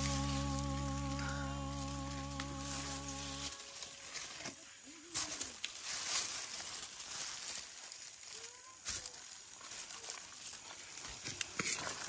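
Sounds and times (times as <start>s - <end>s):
footsteps: 0.0s - 7.6s
corn leaves rustling and crackling: 0.0s - 12.0s.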